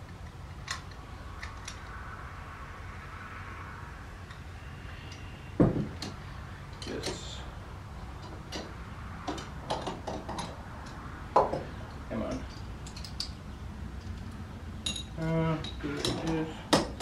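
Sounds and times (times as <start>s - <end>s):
small metal parts clinking: 12.3s - 13.4s, 14.0s - 16.3s.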